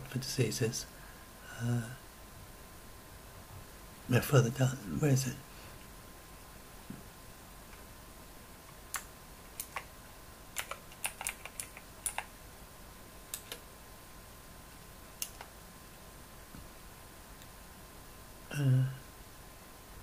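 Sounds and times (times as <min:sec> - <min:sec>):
keyboard key clicks: 0:10.6 - 0:12.3.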